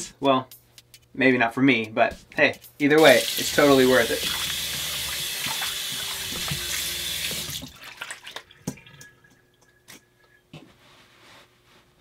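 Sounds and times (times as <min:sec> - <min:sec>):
faucet water running into sink: 0:03.0 - 0:09.2.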